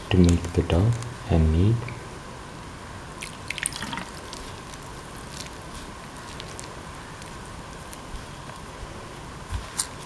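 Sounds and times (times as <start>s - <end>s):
hand squishing dough: 3.2s - 10.0s.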